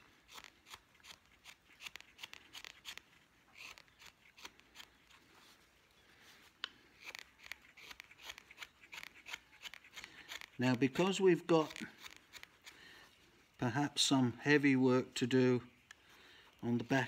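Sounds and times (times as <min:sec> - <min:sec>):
knife slicing wood: 0:00.3 - 0:05.1, 0:07.0 - 0:12.7.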